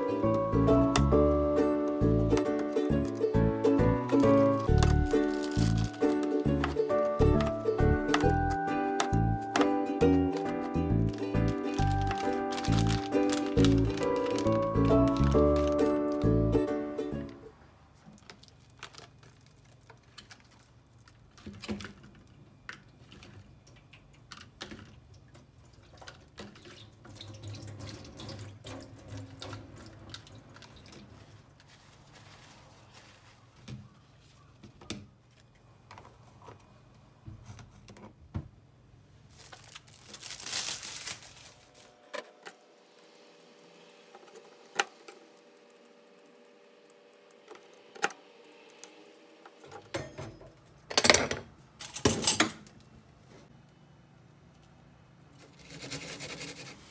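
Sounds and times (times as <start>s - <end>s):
plastic containers clicking: 4.0s - 16.4s.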